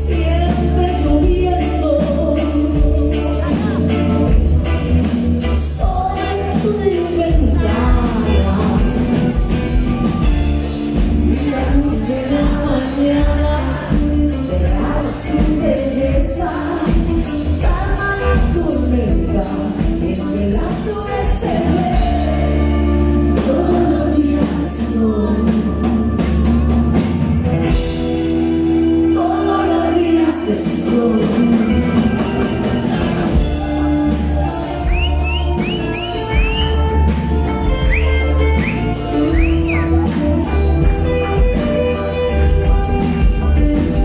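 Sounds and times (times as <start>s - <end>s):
woman singing: 0.0s - 9.8s, 11.0s - 26.7s, 28.9s - 35.6s
live rock band playing: 0.0s - 44.0s.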